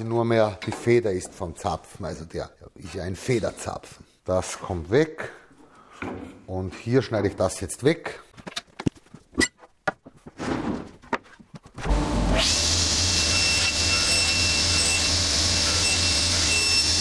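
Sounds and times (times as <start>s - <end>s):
table saw running: 11.8s - 17.0s.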